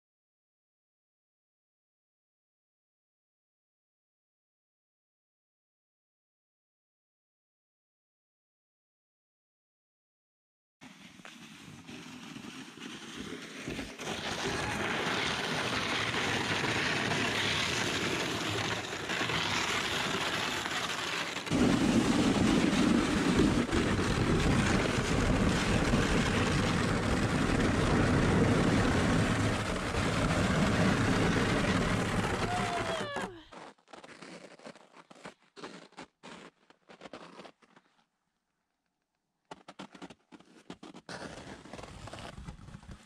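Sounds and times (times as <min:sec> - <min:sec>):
plastic sled scraping over ice: 0:10.8 - 0:38.0, 0:39.5 - 0:43.0.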